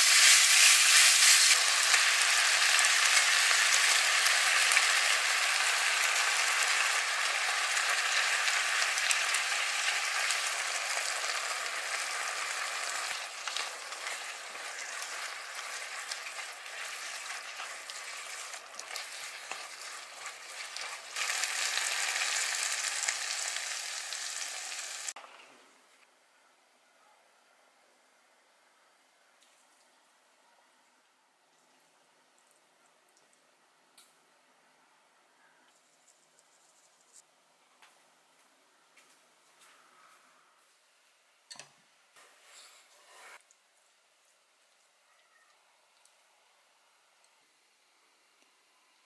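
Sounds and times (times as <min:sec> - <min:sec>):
food sizzling in a frying pan: 0:00.0 - 0:25.2.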